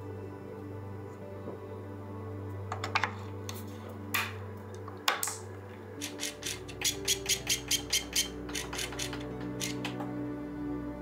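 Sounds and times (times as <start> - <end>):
soft musical drone: 0.0 - 11.0
bicycle mechanical clicking: 6.0 - 10.0.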